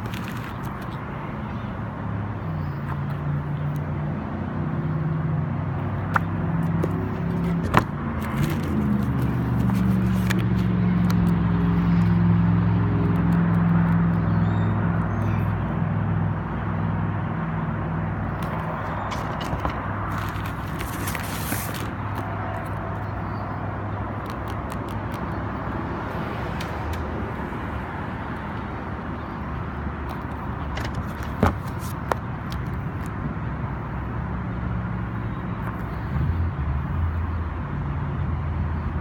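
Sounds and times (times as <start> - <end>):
vehicle engine running: 5.5 - 23.4.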